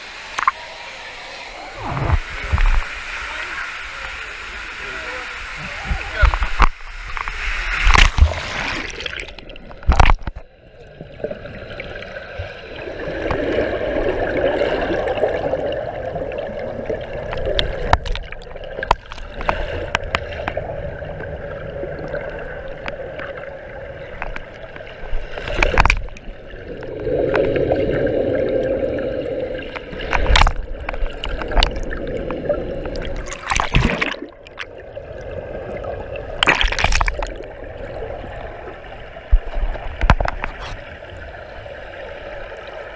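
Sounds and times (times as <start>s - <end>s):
underwater rushing and gurgling: 0.0s - 42.9s
sharp splashes or knocks: 33.0s - 34.6s, 36.4s - 37.4s.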